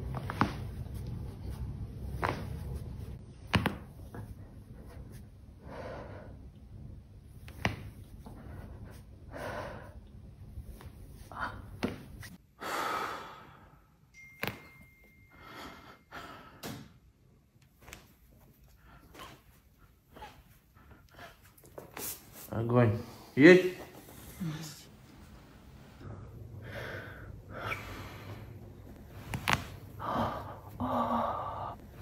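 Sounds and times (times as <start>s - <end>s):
spine cracking pops: 3.5s - 3.9s.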